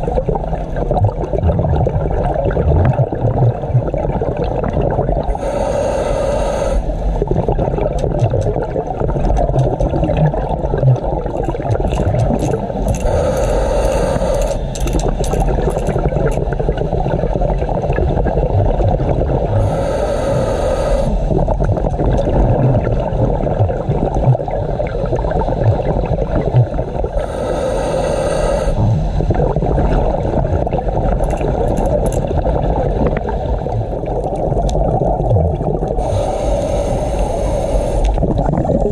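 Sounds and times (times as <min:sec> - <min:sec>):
diver exhaling bubbles: 0:00.0 - 0:38.9
low rumble of water: 0:00.0 - 0:38.9.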